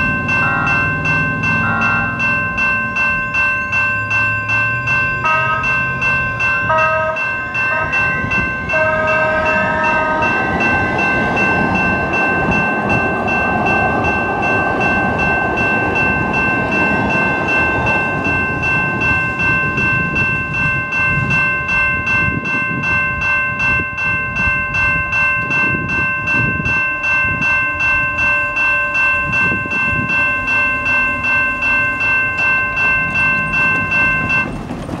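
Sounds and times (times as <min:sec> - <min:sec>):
electronic crossing bell ringing: 0:00.0 - 0:34.6
train rumbling across crossing: 0:00.0 - 0:35.0
train horn blasts: 0:00.4 - 0:00.9, 0:01.5 - 0:02.2, 0:05.2 - 0:05.8, 0:06.6 - 0:10.9.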